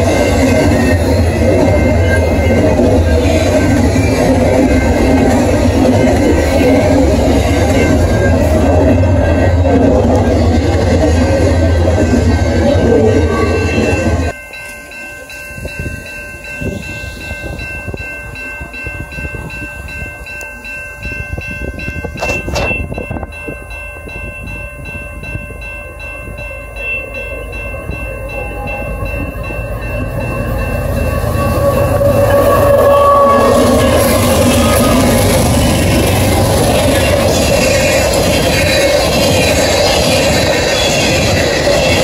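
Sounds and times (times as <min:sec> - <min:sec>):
freight train rumble: 0:00.0 - 0:42.0
level crossing bell ringing: 0:13.1 - 0:39.9.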